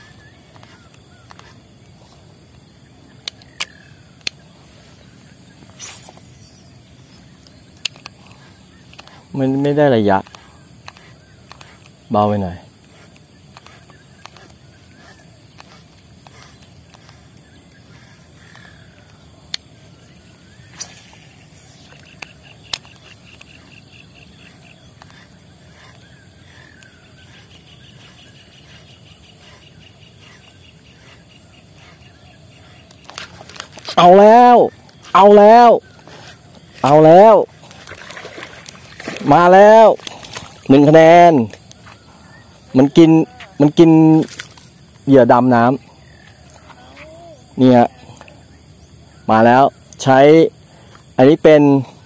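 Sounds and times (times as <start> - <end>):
low outdoor background: 0.0 - 52.0
fishing reel clicks: 3.2 - 4.4, 7.4 - 12.0, 20.6 - 27.4
fishing rod swish: 5.2 - 6.4.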